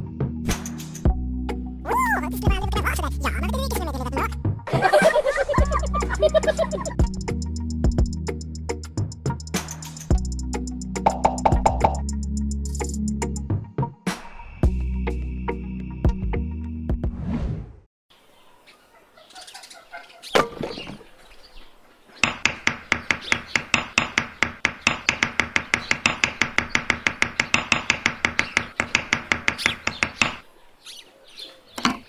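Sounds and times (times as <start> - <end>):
hammer tapping wooden stick: 11.0 - 12.0, 22.2 - 30.4.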